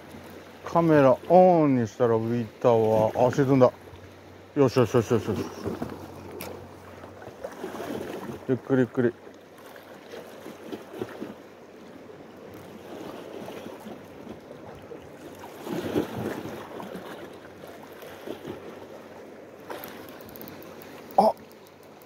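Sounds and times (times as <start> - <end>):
sea water lapping against rocks: 4.8 - 22.0.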